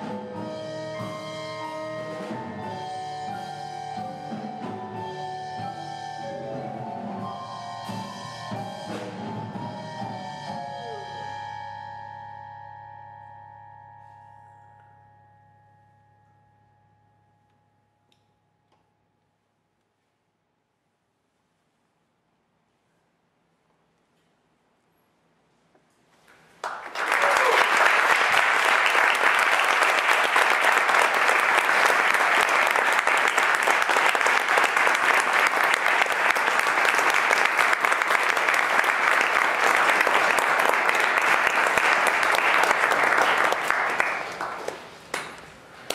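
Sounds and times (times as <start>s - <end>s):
audience applauding: 26.5s - 45.9s.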